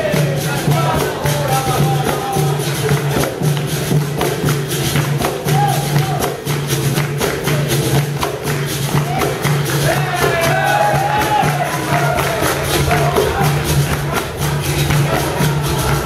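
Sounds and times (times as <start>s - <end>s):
call-and-response singing: 0.0s - 3.2s, 9.8s - 16.0s
atabaque drum: 0.0s - 16.0s
hand clapping: 0.0s - 16.0s
pandeiros: 0.0s - 16.0s.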